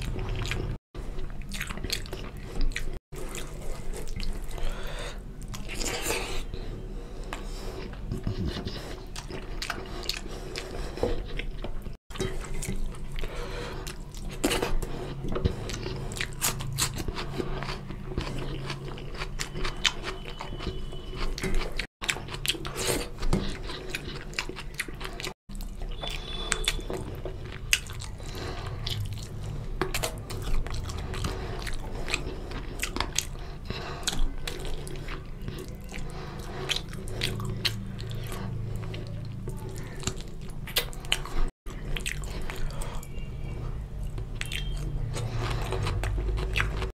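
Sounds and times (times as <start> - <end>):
close chewing and biting: 0.0 - 46.9.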